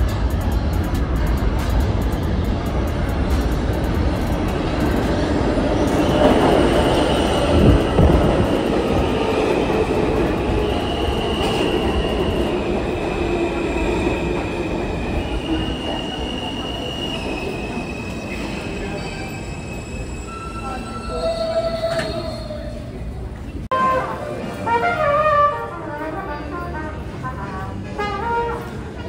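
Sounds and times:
train wheels rumbling on rails: 0.0s - 25.0s
high wheel squeals: 15.2s - 22.9s.

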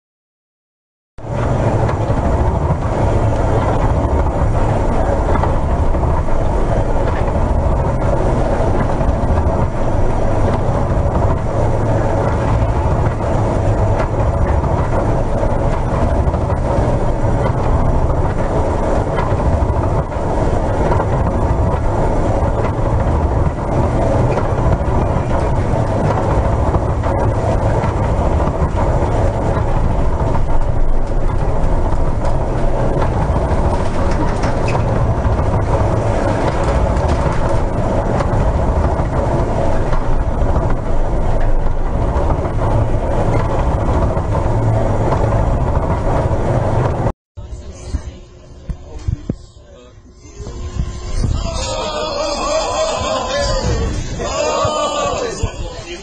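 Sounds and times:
ship engine rumble: 1.2s - 56.0s
wind: 1.2s - 56.0s
sea noise: 50.0s - 56.0s.

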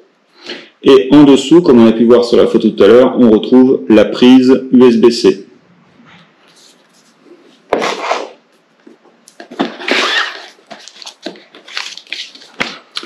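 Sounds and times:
cardboard scraping and rustling: 7.7s - 8.4s, 9.4s - 12.8s.

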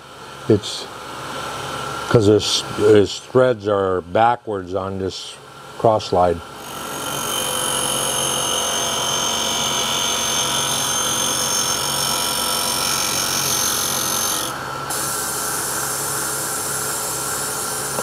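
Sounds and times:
grinding wheel grinding metal: 6.6s - 15.1s.

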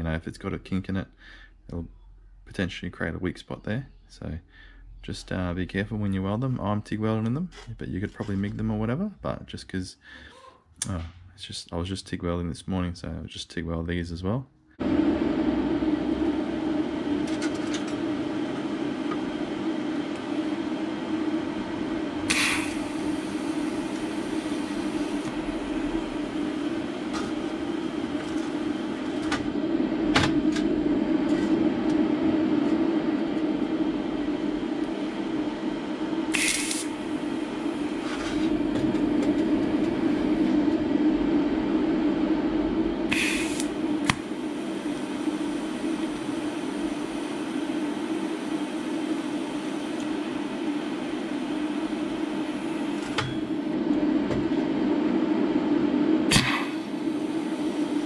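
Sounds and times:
steady mechanical hum: 0.0s - 58.0s
short hissing bursts: 43.1s - 43.7s.

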